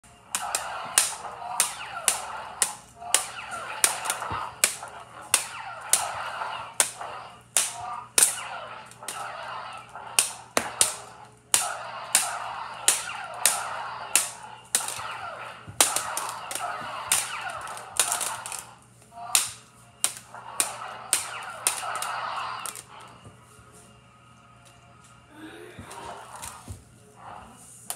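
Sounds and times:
wavering buzz: 0:00.0 - 0:27.9
plastic toy lightsabers clacking: 0:00.3 - 0:23.1.

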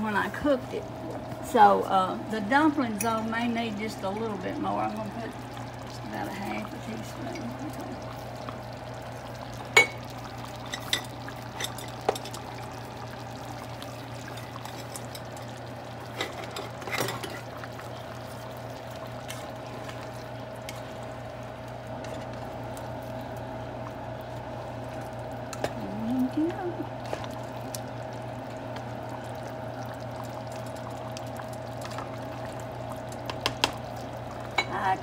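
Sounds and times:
steady low hum: 0:00.0 - 0:35.0.

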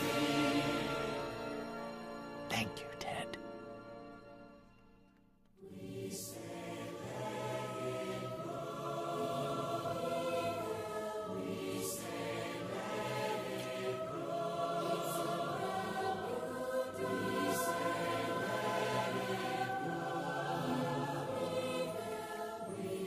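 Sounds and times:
choir singing: 0:00.0 - 0:03.2, 0:05.6 - 0:23.0
orchestral film score: 0:00.0 - 0:04.9.

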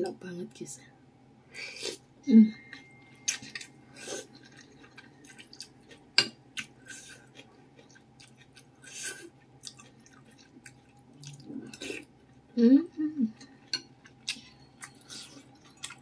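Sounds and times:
faint steady hum: 0:00.0 - 0:16.0
wet chewing: 0:03.3 - 0:06.0, 0:06.6 - 0:12.1, 0:13.4 - 0:16.0.

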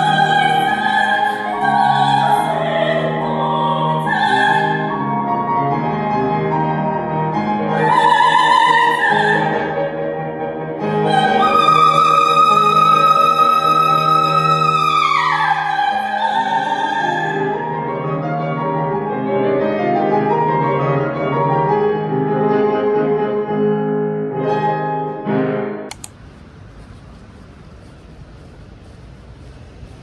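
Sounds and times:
soprano singing: 0:00.0 - 0:05.5, 0:07.4 - 0:18.2
piano accompaniment: 0:00.0 - 0:25.9
click: 0:25.9 - 0:26.2
low background noise: 0:25.9 - 0:30.0.

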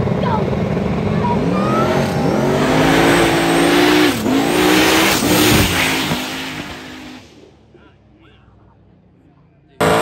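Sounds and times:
race cars accelerating hard: 0:00.9 - 0:07.4, 0:09.8 - 0:10.0.

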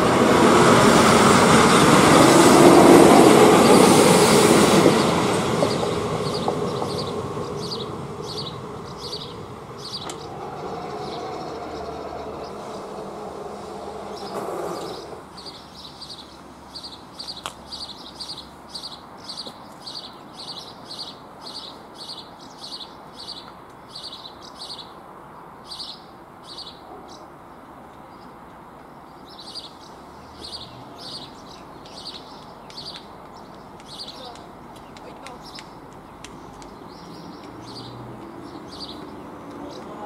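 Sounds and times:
small bird chirping: 0:05.7 - 0:12.9.

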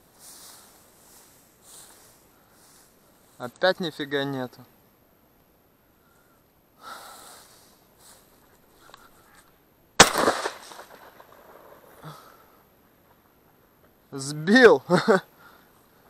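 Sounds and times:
shotgun shot: 0:10.0 - 0:11.8.

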